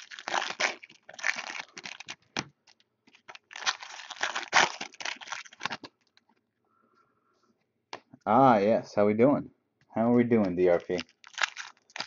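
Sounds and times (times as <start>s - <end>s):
foil wrappers crinkling and tearing: 0.0s - 6.2s, 10.4s - 12.0s.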